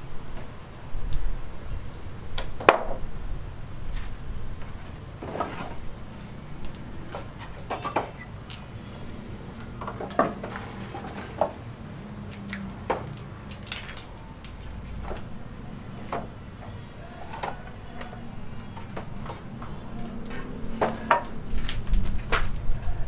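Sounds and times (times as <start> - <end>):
low steady hum: 0.0 - 23.0
hard objects knocking and clanking: 7.1 - 8.3, 18.7 - 22.6.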